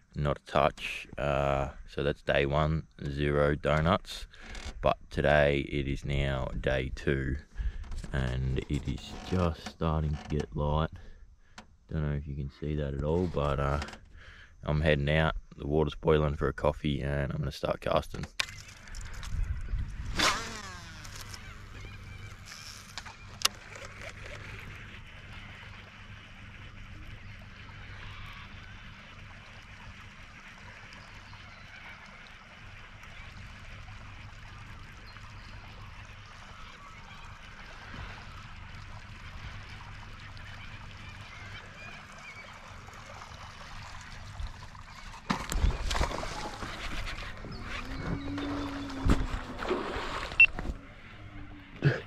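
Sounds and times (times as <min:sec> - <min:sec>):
faint low hum: 0:00.0 - 0:52.0
birds calling: 0:18.3 - 0:52.0
waterfowl honking: 0:20.8 - 0:45.3, 0:46.0 - 0:51.8.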